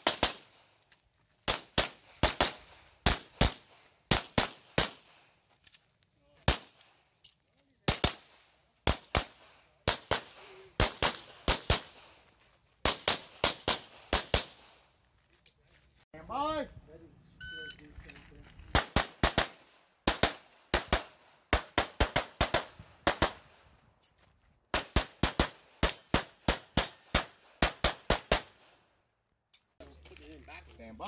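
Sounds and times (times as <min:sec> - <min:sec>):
pistol shots: 0:00.0 - 0:00.6, 0:01.5 - 0:05.3, 0:06.5 - 0:07.0, 0:07.9 - 0:12.1, 0:12.8 - 0:14.8, 0:18.7 - 0:23.5.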